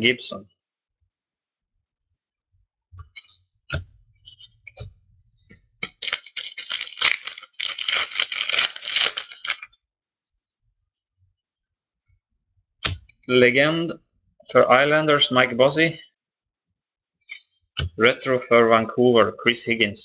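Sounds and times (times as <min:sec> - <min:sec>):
plastic wrapper tearing and crinkling: 0:05.8 - 0:09.8.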